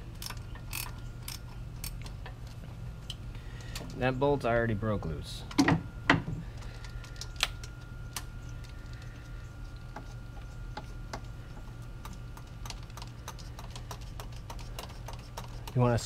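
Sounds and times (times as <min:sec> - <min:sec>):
low hum: 0:00.0 - 0:16.0
socket ratchet clicking: 0:00.2 - 0:02.1.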